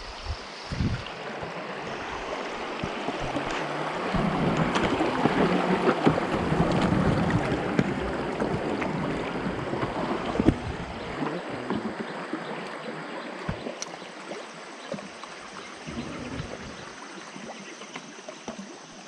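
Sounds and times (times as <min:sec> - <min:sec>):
wind on microphone: 0:00.0 - 0:12.0, 0:15.9 - 0:17.0
water splashing along boat hull: 0:00.7 - 0:19.0.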